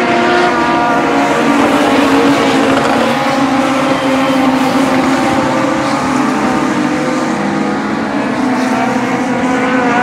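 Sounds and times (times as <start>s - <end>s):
motorcycle engines at high revs: 0.0s - 10.0s.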